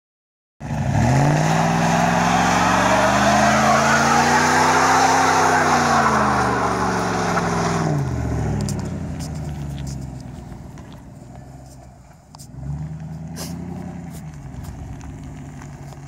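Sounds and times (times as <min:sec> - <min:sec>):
engine at high revs: 0:00.6 - 0:10.0, 0:12.4 - 0:16.0
tyres spinning and squealing: 0:01.3 - 0:08.0.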